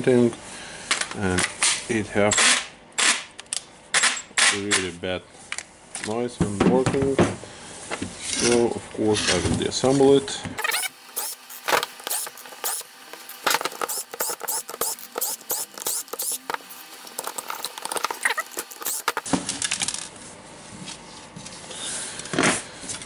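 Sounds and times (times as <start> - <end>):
screws and plastic parts clicking: 10.6 - 19.3.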